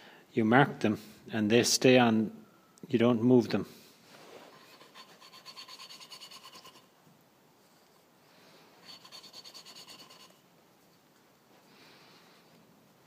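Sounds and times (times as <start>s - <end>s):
valve lapping gritty rasp: 4.5s - 6.9s, 8.8s - 10.4s.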